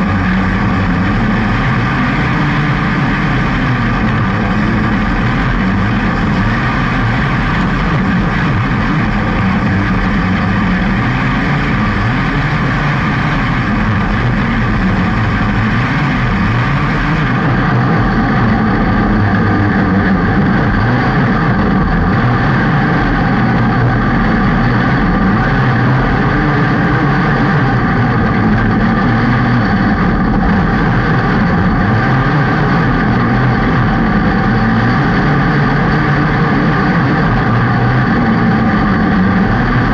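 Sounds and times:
race car engine running hard: 0.0 - 39.9.

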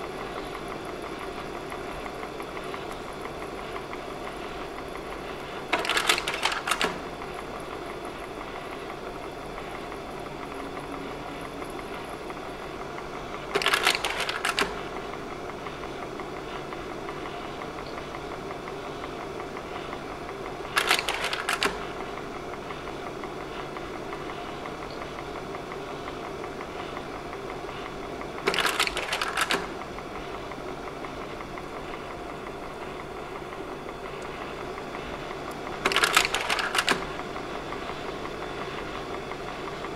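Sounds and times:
projector fan hum: 0.0 - 39.9.

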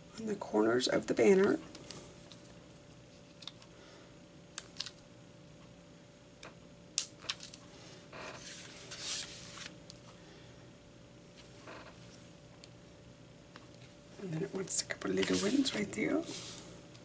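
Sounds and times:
arm brushing across paper: 8.4 - 9.7, 15.0 - 16.8.

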